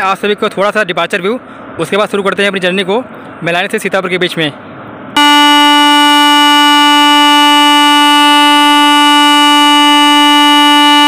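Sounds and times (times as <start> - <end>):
train horn blast: 5.2 - 11.0.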